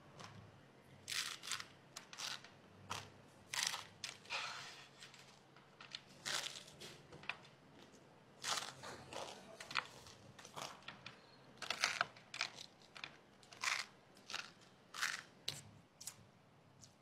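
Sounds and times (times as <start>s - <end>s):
crunching of dry noodles: 1.0s - 4.3s, 6.1s - 7.0s, 8.4s - 16.2s.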